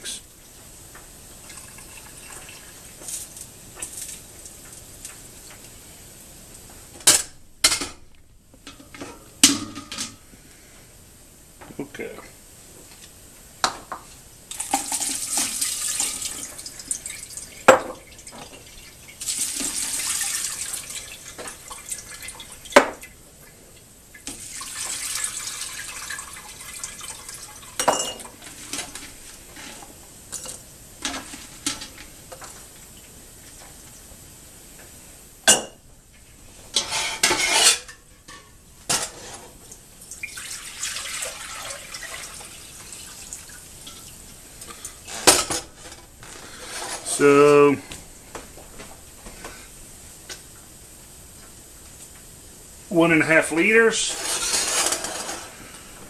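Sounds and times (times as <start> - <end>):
water pouring and splashing: 1.4 - 5.0, 14.5 - 23.5, 24.1 - 31.8, 39.2 - 45.4
glass jars clinking and knocking: 27.8 - 28.3.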